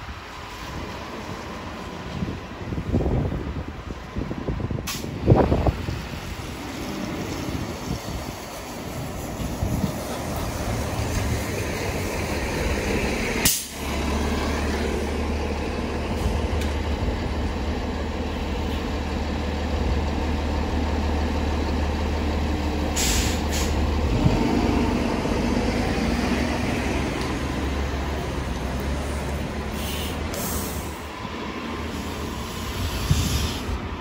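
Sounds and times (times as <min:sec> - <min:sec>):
bus engine droning: 0:00.0 - 0:34.0
air brakes hissing: 0:22.9 - 0:23.9, 0:29.7 - 0:31.1, 0:31.8 - 0:33.9.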